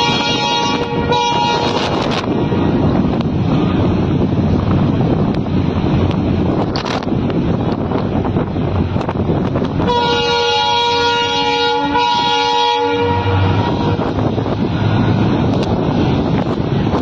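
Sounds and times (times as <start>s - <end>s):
train horn blast: 0.0s - 2.2s, 9.8s - 14.4s
wind buffeting microphone: 0.0s - 17.0s.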